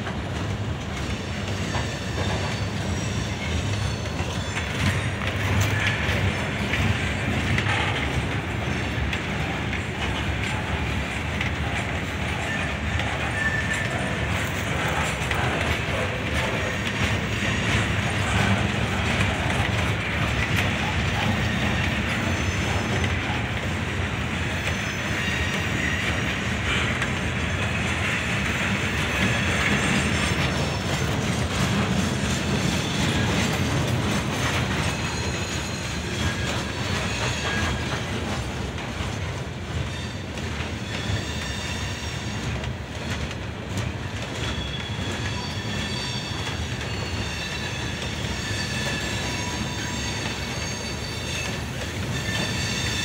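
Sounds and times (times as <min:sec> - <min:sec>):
train wheels rumbling and clattering: 0:00.0 - 0:53.0
high wheel squeals: 0:01.0 - 0:06.4, 0:12.2 - 0:15.1, 0:20.6 - 0:23.2, 0:24.5 - 0:27.8, 0:34.4 - 0:38.1, 0:39.8 - 0:42.6, 0:44.4 - 0:53.0.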